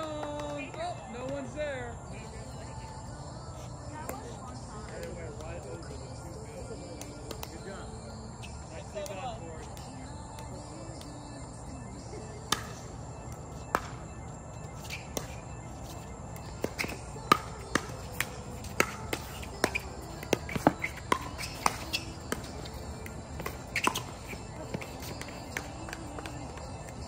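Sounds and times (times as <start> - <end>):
ball popping off paddles: 13.6 - 14.0, 14.8 - 27.0.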